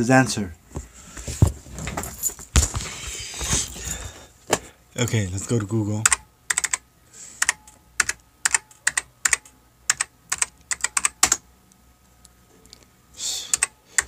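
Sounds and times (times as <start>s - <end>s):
keyboard typing: 6.1s - 6.8s, 7.4s - 11.4s, 13.5s - 14.0s.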